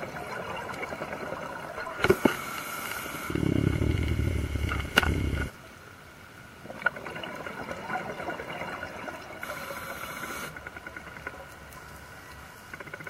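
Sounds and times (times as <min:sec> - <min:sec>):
underwater crackling and bubbling: 0:00.0 - 0:05.6, 0:06.6 - 0:13.0
regulator hiss: 0:02.0 - 0:05.6, 0:09.4 - 0:10.6.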